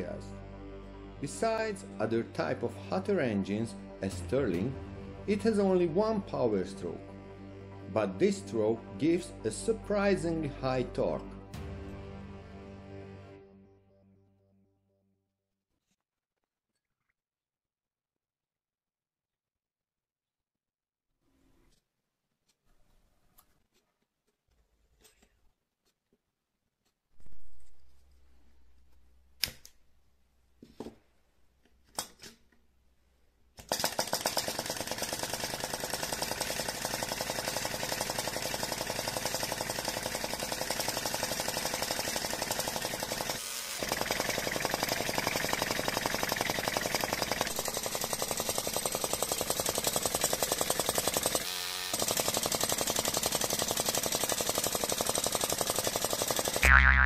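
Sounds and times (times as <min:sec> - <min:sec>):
hot air engine clattering: 0:33.7 - 0:56.6.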